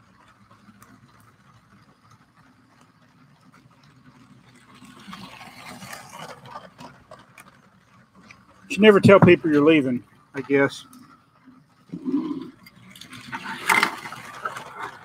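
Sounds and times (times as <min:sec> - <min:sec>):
toy train motor whirring: 0:00.0 - 0:15.0
wheels clicking over track: 0:00.0 - 0:15.0.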